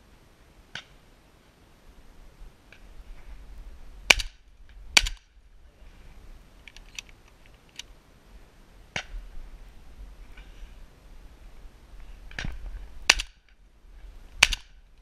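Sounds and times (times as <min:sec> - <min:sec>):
loud shotgun shots: 0:13.1 - 0:13.4.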